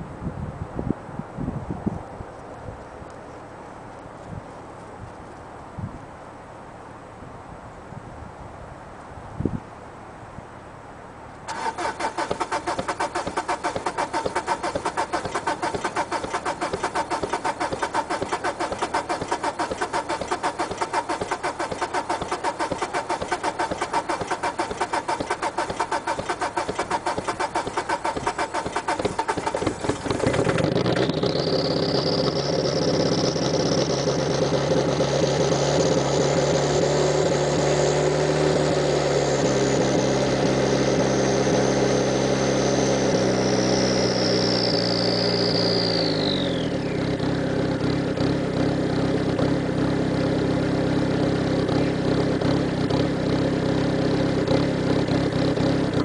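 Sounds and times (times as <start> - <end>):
starter motor cranking engine: 11.5 - 37.4, 39.4 - 56.0
diesel engine idling: 11.5 - 56.0.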